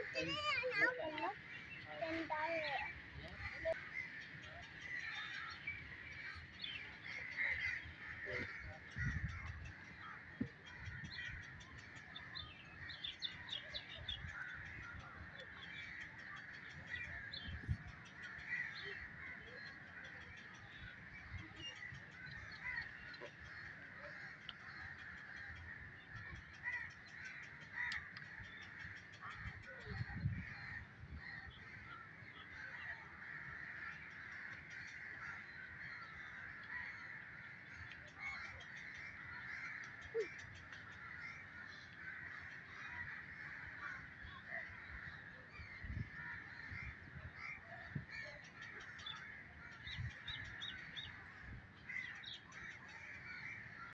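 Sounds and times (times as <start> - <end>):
many birds calling: 0.0 - 53.9.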